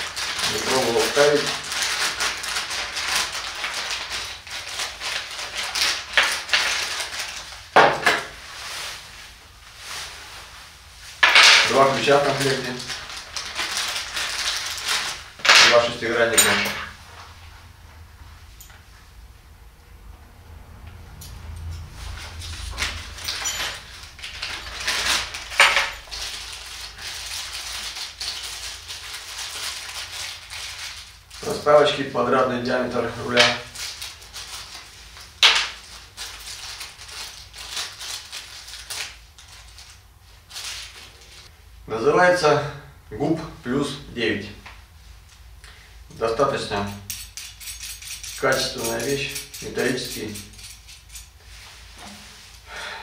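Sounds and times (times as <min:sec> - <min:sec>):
small hardware pieces clinking: 0:22.8 - 0:26.1, 0:46.9 - 0:51.4.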